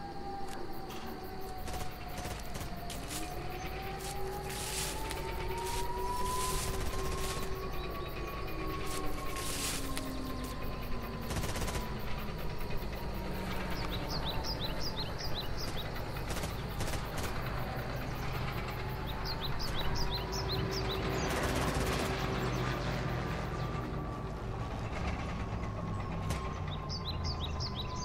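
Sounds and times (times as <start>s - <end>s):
slow gliding siren tone: 0.0s - 28.0s
high falling bird chirps: 1.0s - 17.4s.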